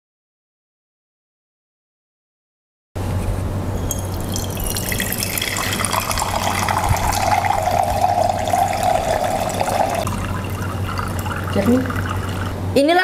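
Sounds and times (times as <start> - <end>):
steady low hum: 3.0 - 13.0
water pouring into glass beaker: 3.9 - 12.6.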